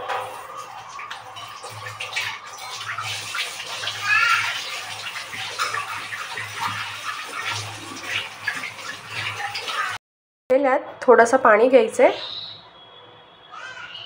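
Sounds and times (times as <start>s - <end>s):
water running into steel pot: 0.0s - 10.0s.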